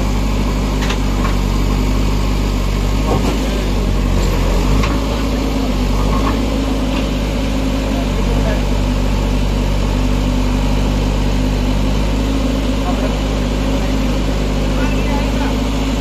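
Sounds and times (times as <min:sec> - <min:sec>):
diesel engine running: 0:00.0 - 0:16.0.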